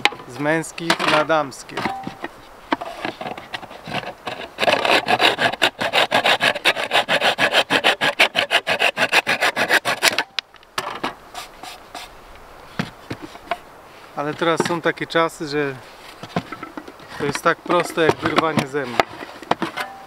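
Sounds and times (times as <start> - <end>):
handling of wood: 0.0 - 20.0
hand saw cutting wood: 2.9 - 10.3, 17.1 - 20.0.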